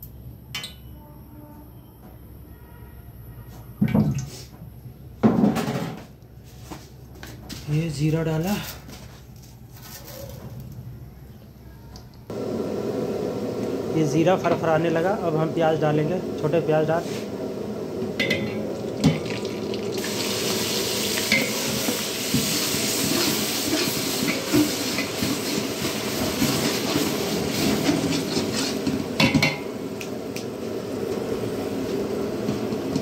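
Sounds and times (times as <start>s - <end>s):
onions sizzling in hot oil: 17.7s - 33.0s.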